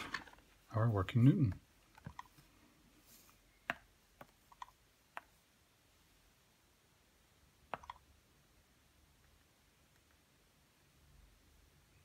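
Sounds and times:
stylus tapping on touchscreen: 1.5s - 2.4s, 3.6s - 5.4s, 7.7s - 8.1s.

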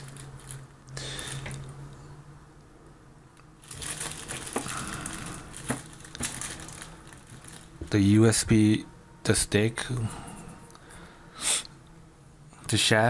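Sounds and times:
cable rustling and scraping: 0.0s - 2.1s, 3.6s - 8.0s
steady low hum: 0.0s - 13.0s.

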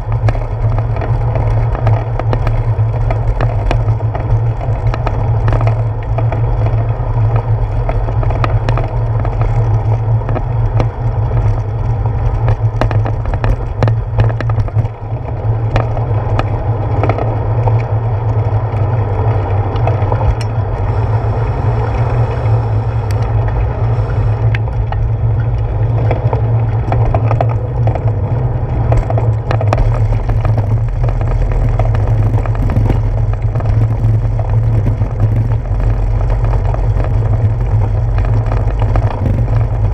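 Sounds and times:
clicks and rattles: 0.0s - 20.8s, 24.5s - 39.9s
bicycle rolling over bricks: 0.0s - 39.9s.

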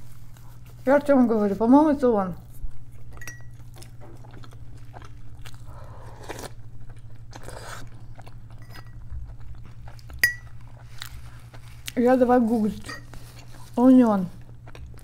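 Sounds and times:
wet chewing: 2.5s - 15.0s
metal spoon clinking ceramic bowl: 3.2s - 3.5s, 10.2s - 10.4s
slurping soup from a spoon: 7.4s - 8.0s.

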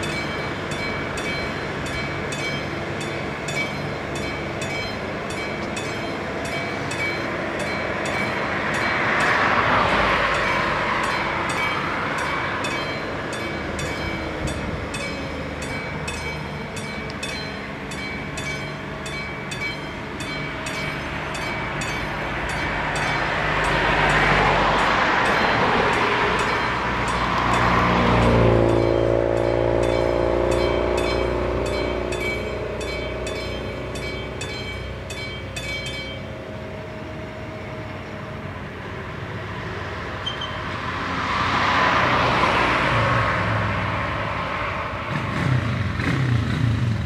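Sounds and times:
electric train humming: 0.0s - 45.2s
level crossing bell ringing: 10.2s - 36.3s.

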